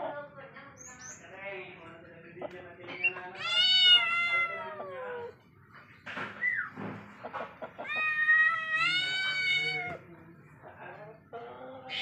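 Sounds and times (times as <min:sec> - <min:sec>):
cat meowing: 0:03.3 - 0:05.4, 0:07.8 - 0:10.0.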